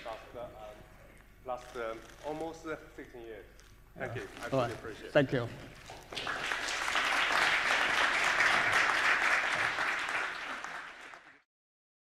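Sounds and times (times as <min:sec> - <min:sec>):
audience applauding: 0:05.9 - 0:11.5.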